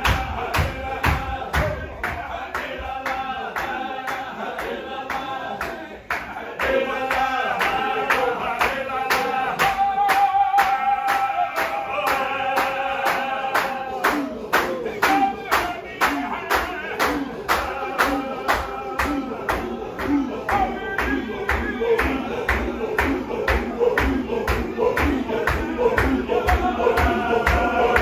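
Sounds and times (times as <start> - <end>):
hand claps: 0.0 - 28.0
men chanting in unison: 0.0 - 28.0.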